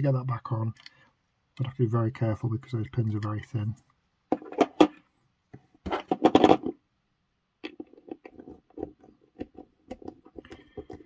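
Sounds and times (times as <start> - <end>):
screwdriver clicks and scrapes on plastic: 7.6 - 11.0.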